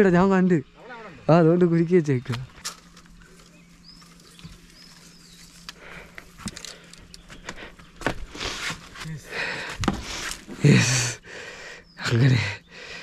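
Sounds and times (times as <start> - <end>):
reeds and grass rustling: 2.2 - 9.2
faint bird chirps: 11.6 - 13.0.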